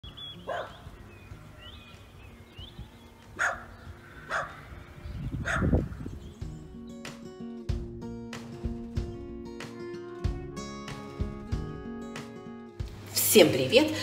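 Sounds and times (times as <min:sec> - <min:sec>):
small birds chirping: 0:00.0 - 0:07.2.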